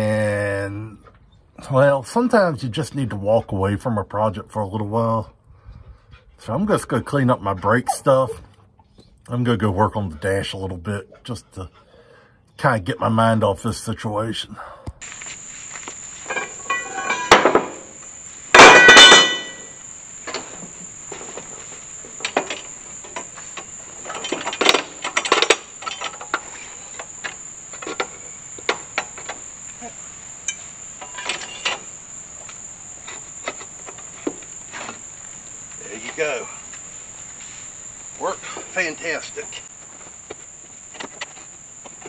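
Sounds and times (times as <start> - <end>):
high insect drone: 5.9 - 8.5, 11.2 - 42.0
ringing metallic clatters: 18.6 - 19.7.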